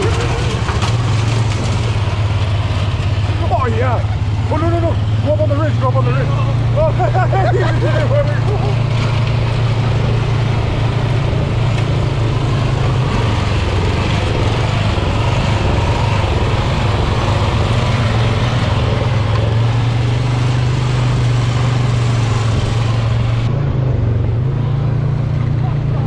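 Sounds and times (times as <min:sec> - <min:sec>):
tyres on gravel: 0:00.0 - 0:23.5
engines droning: 0:00.0 - 0:26.0
wind rush: 0:09.4 - 0:20.4.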